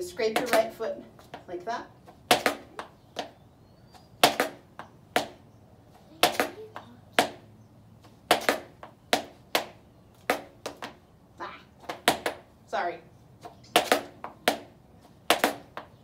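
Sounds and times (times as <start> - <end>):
dance shoes scraping concrete: 0.0 - 11.0, 11.8 - 12.5, 13.4 - 16.0
heel strikes on concrete: 2.3 - 3.4, 4.2 - 5.4, 6.2 - 7.5, 8.2 - 11.0, 11.8 - 12.5, 13.4 - 16.0.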